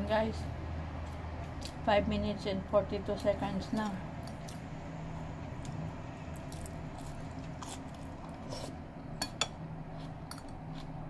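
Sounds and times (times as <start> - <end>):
low steady hum: 0.0 - 11.0
person chewing food: 5.4 - 11.0.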